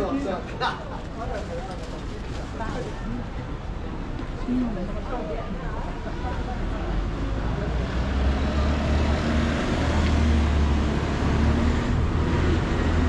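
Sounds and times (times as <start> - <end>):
road noise: 0.0 - 13.0.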